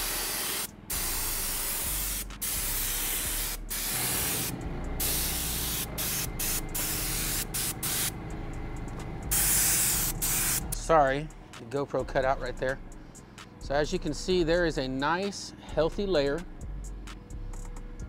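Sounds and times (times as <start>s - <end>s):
spray gun air hissing: 0.0s - 8.2s, 9.3s - 10.7s.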